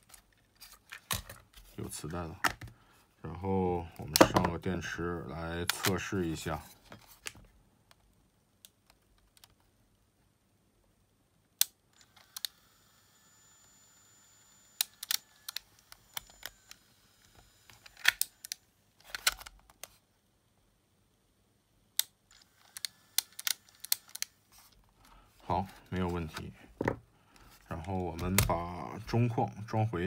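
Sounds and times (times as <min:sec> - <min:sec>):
tape mechanism whirring: 0:12.0 - 0:19.4, 0:22.3 - 0:24.4.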